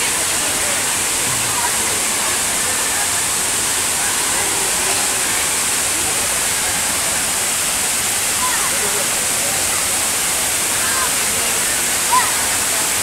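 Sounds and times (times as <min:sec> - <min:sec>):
crowd chattering faintly: 0:00.0 - 0:13.0
waterfall rushing: 0:00.0 - 0:13.0.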